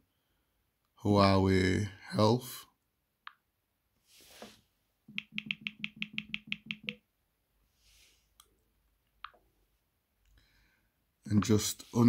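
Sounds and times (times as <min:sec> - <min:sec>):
phone keyboard taps: 0:05.1 - 0:07.0.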